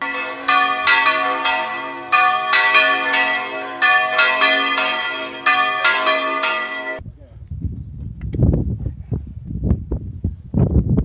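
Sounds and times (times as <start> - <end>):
church bells ringing: 0.0 - 7.0.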